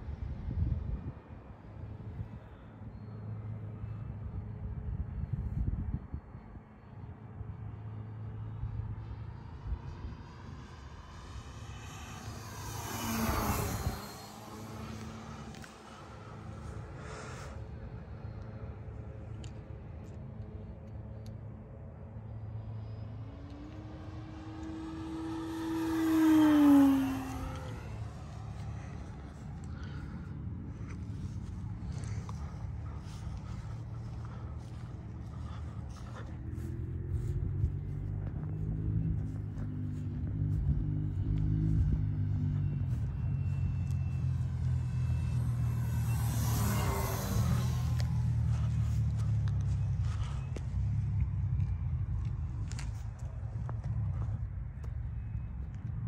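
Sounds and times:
steady low rumble: 0.0 - 56.0
model airplane motor passing: 8.3 - 18.8, 22.3 - 51.2.

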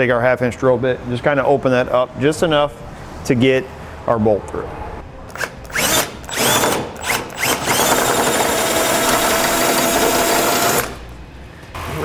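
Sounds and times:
power drill drilling steel: 5.4 - 11.0.

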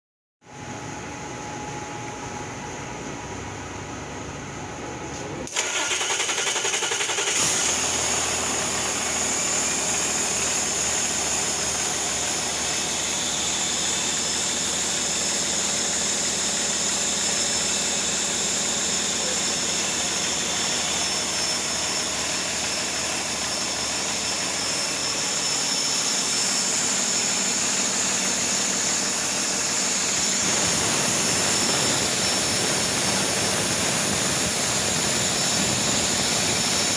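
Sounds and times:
diesel engine running: 2.5 - 36.9
engine starter cranking: 5.4 - 9.2.

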